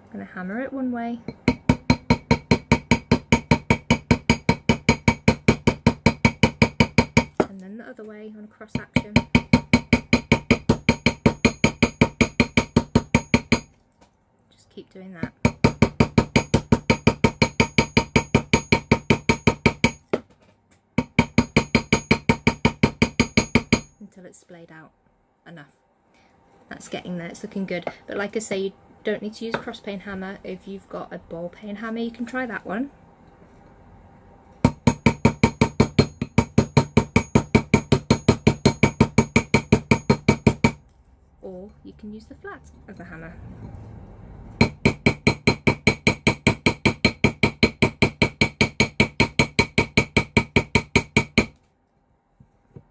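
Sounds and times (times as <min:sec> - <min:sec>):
hammer tapping metal rivet: 0:21.0 - 0:23.9.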